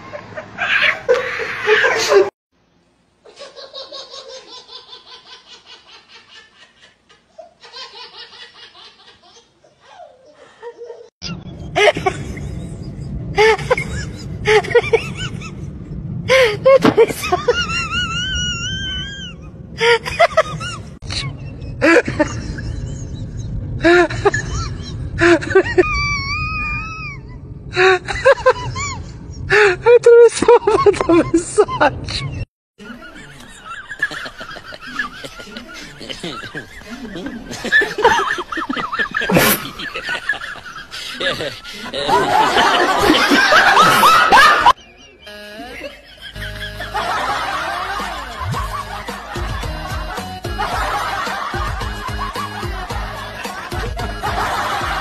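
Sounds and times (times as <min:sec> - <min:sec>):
loud laughing: 0:00.0 - 0:02.4, 0:03.3 - 0:15.6, 0:16.3 - 0:55.0
low background rumble: 0:11.2 - 0:43.9
high-pitched breathy voice squealing: 0:25.8 - 0:27.4
rhythmic hard laughter: 0:30.4 - 0:55.0.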